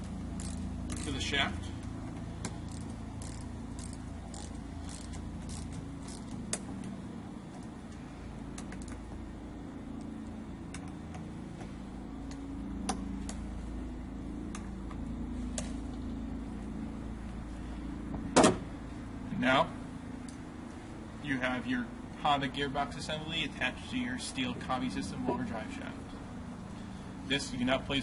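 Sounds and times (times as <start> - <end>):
low background rumble: 0.0 - 28.0
wrench clicking on bolts: 0.4 - 1.2, 2.5 - 6.4.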